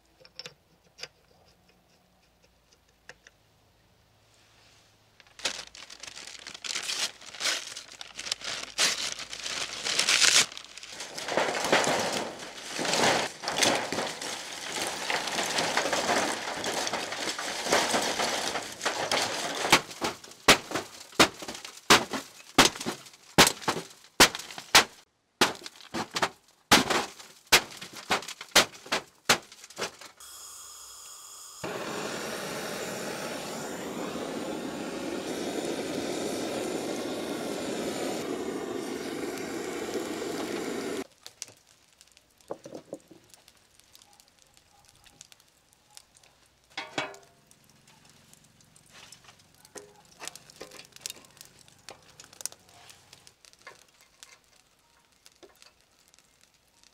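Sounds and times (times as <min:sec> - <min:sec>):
charcoal clattering into metal firebox: 0:10.0 - 0:30.2, 0:39.3 - 0:44.2, 0:46.6 - 0:48.3, 0:48.9 - 0:56.6
gas blowtorch hissing: 0:30.2 - 0:41.1.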